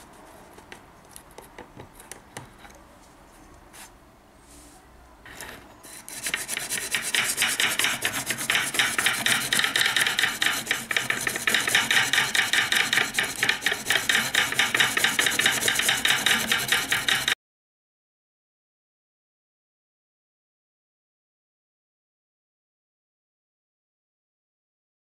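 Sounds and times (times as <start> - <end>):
sharpening bar rasping on blade: 5.8 - 17.4
jig knocking: 6.1 - 17.4.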